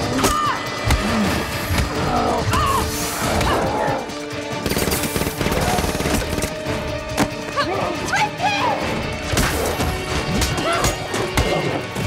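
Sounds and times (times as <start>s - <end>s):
loud action film music: 0.0s - 12.0s.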